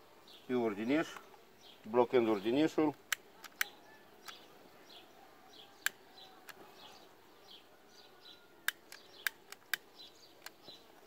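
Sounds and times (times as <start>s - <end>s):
faint bird chirps: 3.3s - 11.0s
utility lighter clicks: 8.6s - 10.6s.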